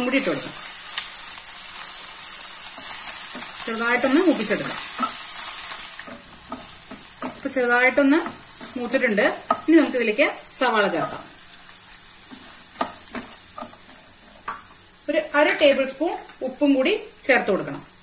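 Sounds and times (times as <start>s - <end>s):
chillies sizzling in hot oil: 0.0s - 18.0s
wooden spatula scraping: 2.6s - 9.7s, 12.2s - 14.6s.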